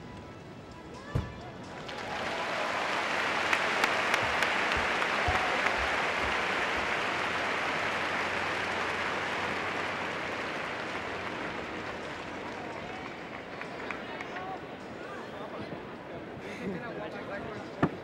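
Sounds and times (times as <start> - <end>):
sharp claps: 1.7 - 14.5
crowd applauding: 1.7 - 14.7.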